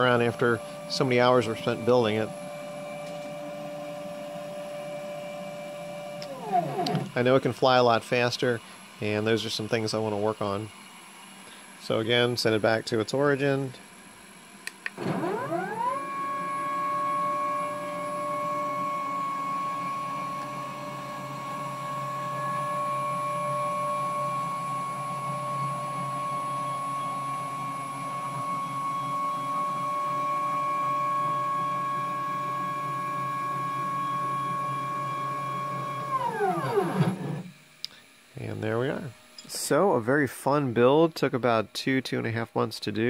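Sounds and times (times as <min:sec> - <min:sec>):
stepper motors whining: 0:06.2 - 0:07.5, 0:14.8 - 0:32.0, 0:33.2 - 0:37.6.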